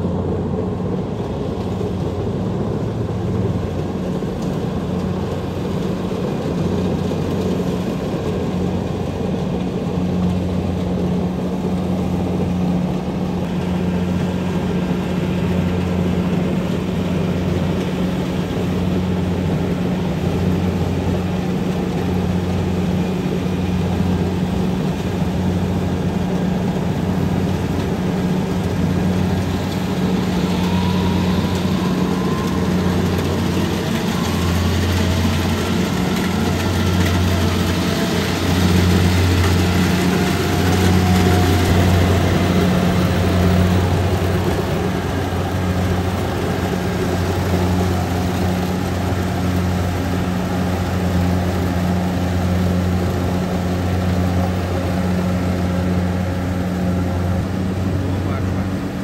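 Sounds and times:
combine harvester drone: 0.0s - 59.0s.

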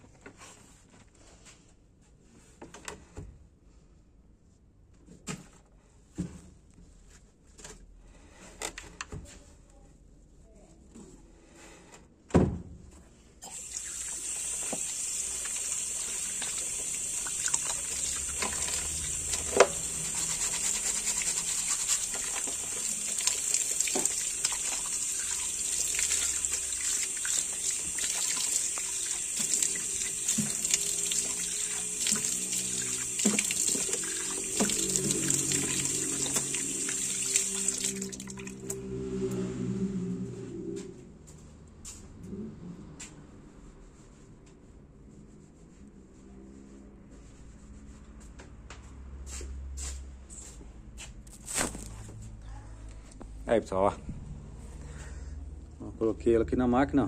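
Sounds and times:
tap water running into sink: 13.4s - 38.7s.

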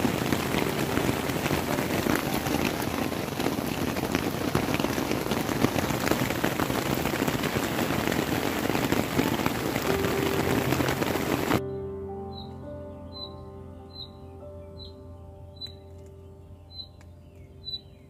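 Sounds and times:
steady rain falling: 0.0s - 11.6s.

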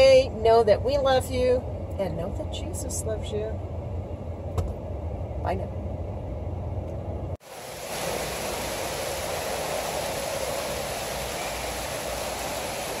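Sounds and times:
vehicle cabin hum: 0.0s - 13.0s
running water rushing: 7.4s - 13.0s.

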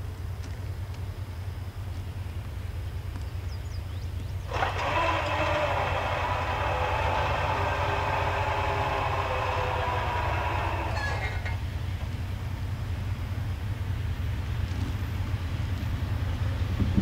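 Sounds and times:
locomotive air horn blast: 4.5s - 11.6s.

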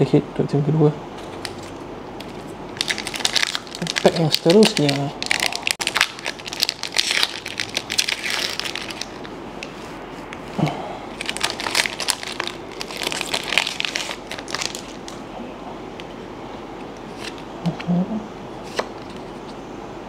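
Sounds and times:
foil wrapper crinkling: 1.2s - 9.8s, 11.2s - 15.2s.

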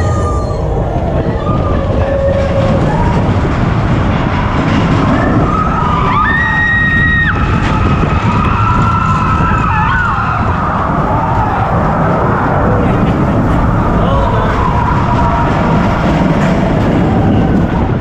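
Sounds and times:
roller coaster train rushing: 0.0s - 18.0s
wind: 0.0s - 18.0s
riders screaming: 5.2s - 18.0s.

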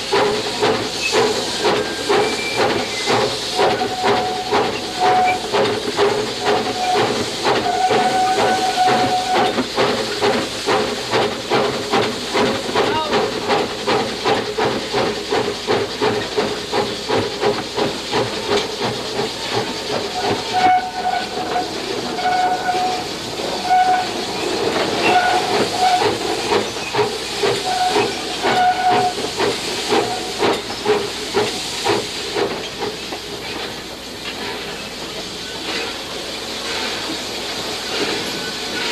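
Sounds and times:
steam hissing: 0.0s - 38.9s
short high squeal: 1.8s - 5.4s.

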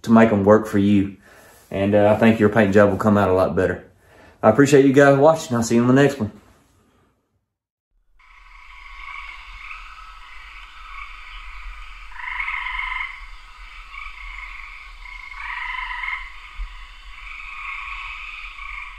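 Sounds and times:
frogs calling in chorus: 8.2s - 18.9s.

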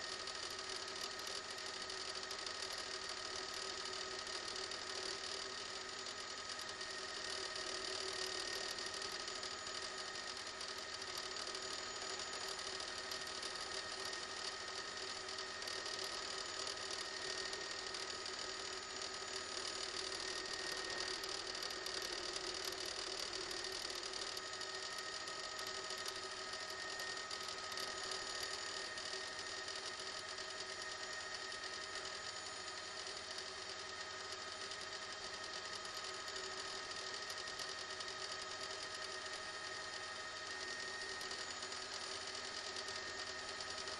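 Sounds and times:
helicopter engine and rotors: 23.2s - 35.4s, 38.8s - 43.8s.

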